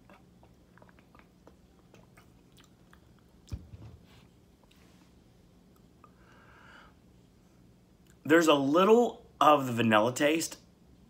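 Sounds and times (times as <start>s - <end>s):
person gulping and swallowing: 0.0s - 3.7s.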